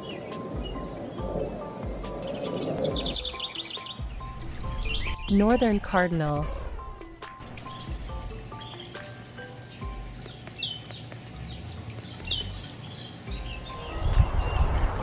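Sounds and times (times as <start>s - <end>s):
bird chip notes: 2.8s - 14.7s
insect trill: 3.9s - 14.8s.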